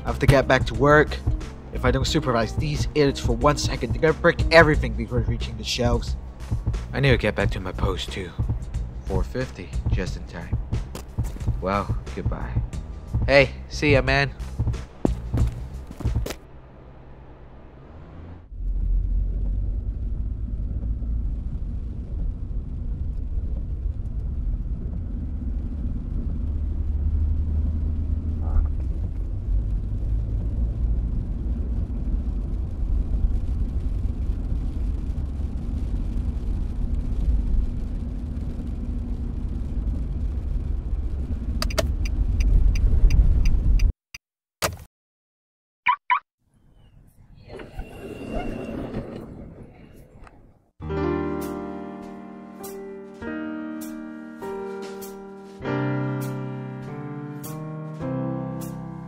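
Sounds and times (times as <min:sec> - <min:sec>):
car driving on road: 0:00.0 - 0:43.9.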